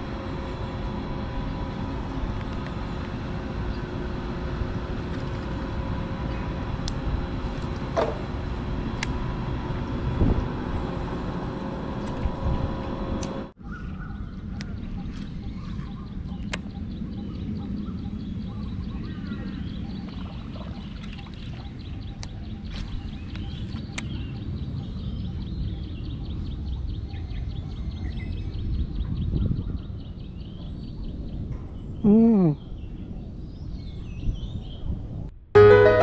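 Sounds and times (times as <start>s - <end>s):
steady low rumble: 0.0s - 26.3s
birds chirping: 0.0s - 34.9s.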